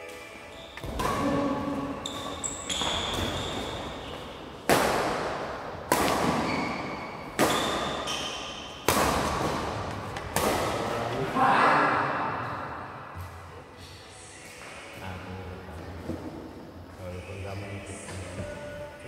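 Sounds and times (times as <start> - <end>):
rackets hitting shuttlecock: 0.8 - 11.0.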